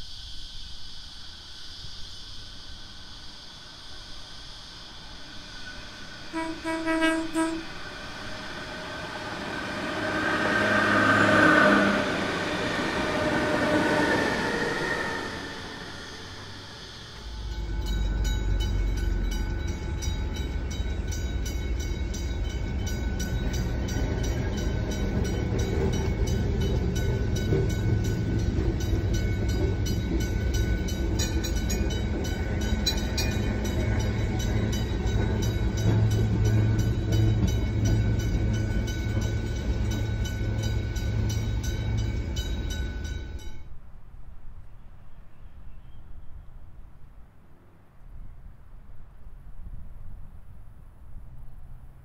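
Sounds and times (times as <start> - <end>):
tram rumbling: 2.1 - 52.0
crossing warning bells ringing: 5.6 - 43.8.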